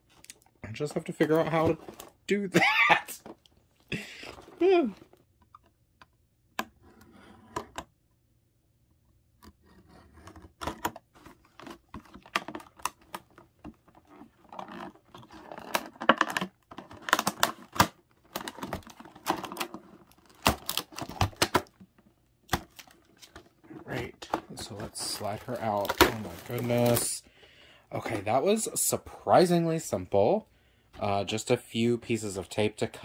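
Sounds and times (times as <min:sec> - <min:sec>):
packaging crinkling and scraping: 0:00.1 - 0:02.2, 0:09.6 - 0:27.2.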